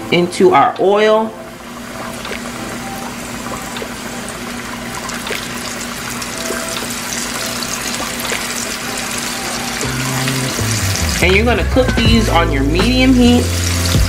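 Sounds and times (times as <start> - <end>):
food frying in oil: 1.6 - 11.3, 12.8 - 14.0.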